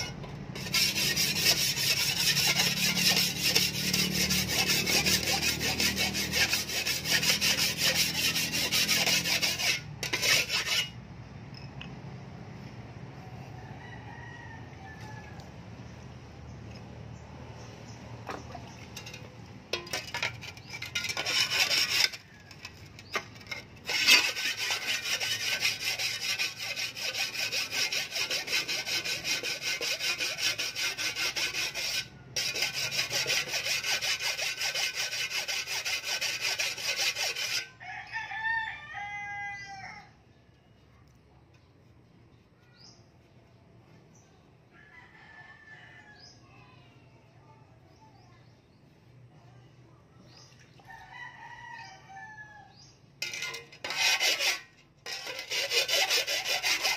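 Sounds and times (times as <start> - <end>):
sharpening stone rasping on shovel: 0.0 - 11.0, 19.0 - 37.8, 53.2 - 56.9
rooster crowing: 13.4 - 15.6, 37.7 - 40.2, 44.8 - 46.4, 50.9 - 52.8.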